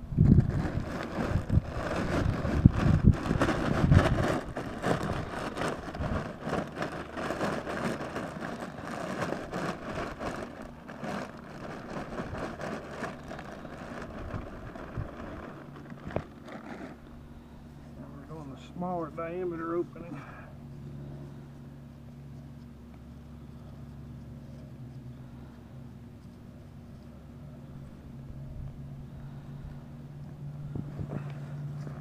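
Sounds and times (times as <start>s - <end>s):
plastic bag crinkling: 0.0s - 17.5s
wood mulch pouring onto tarp: 0.2s - 17.0s.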